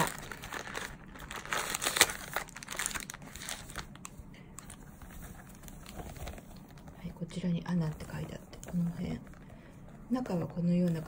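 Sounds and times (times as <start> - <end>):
plastic packets crinkling: 0.0 - 7.1.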